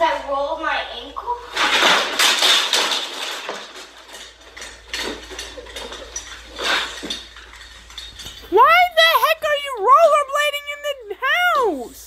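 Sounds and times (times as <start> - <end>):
knocks and scrapes: 1.4 - 8.6
child falling on wooden floor: 1.5 - 4.2.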